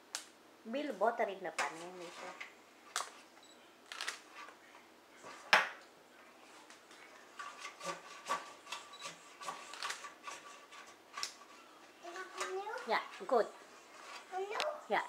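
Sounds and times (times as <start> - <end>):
spatula scraping metal tin: 1.6 - 2.5, 7.2 - 14.6.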